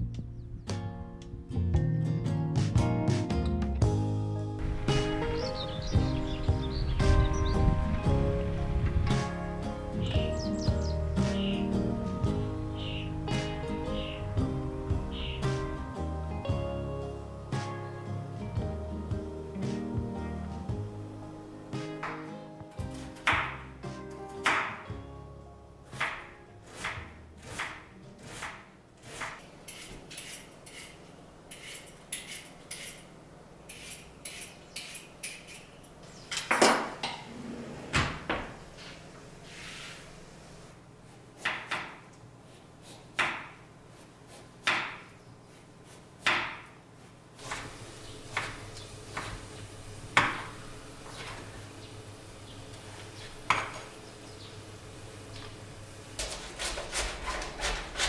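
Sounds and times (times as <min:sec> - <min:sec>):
knife chopping on wooden board: 0:26.0 - 0:29.4, 0:41.4 - 0:42.0, 0:42.8 - 0:43.6, 0:44.3 - 0:45.2, 0:45.9 - 0:46.8
cupboard doors clattering: 0:36.5 - 0:38.8.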